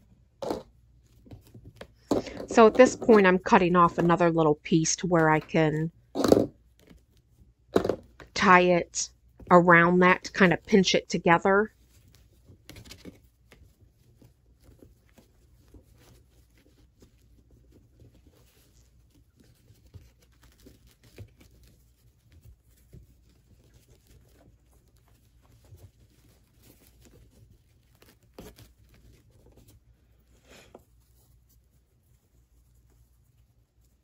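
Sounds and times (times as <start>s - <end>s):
fabric ribbon rustling: 11.6s - 34.0s.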